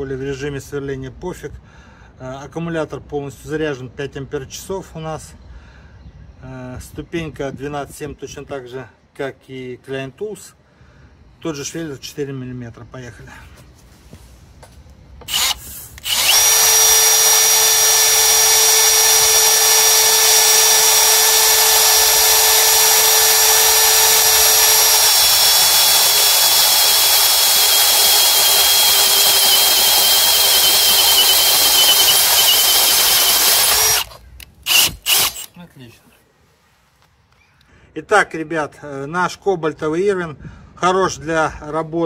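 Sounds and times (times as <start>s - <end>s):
drill whining through steel: 15.2s - 35.6s.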